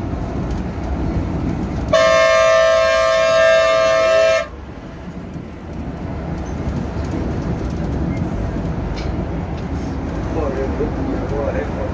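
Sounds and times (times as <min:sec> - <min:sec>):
engine and road noise rumble: 0:00.0 - 0:11.9
coach horn blast: 0:01.9 - 0:04.6.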